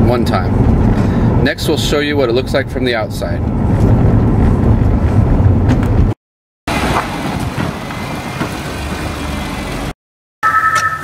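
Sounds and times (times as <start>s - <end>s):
car engine and road rumble: 0.0s - 10.0s
car driving slowly outside: 3.2s - 6.1s, 6.7s - 10.0s
steady high tones: 10.4s - 11.0s.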